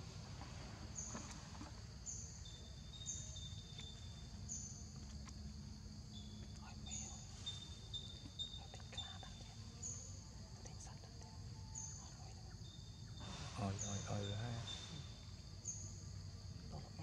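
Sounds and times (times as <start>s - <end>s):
thin steady lower call: 13.2s - 15.8s.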